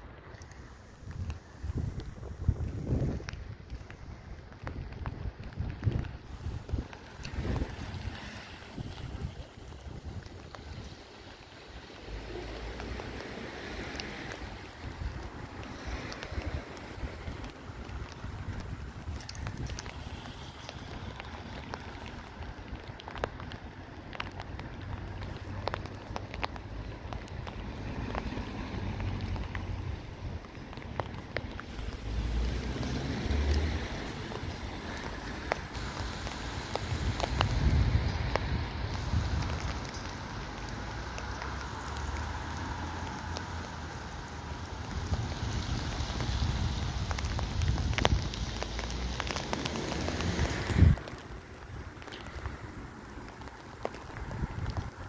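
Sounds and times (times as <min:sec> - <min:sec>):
rain falling: 0:00.0 - 0:55.0
wind buffeting the microphone: 0:00.9 - 0:11.1, 0:14.4 - 0:23.6, 0:29.0 - 0:41.1, 0:44.8 - 0:52.6, 0:53.9 - 0:55.0
light ticks: 0:09.7 - 0:28.4, 0:30.4 - 0:45.3, 0:46.9 - 0:55.0.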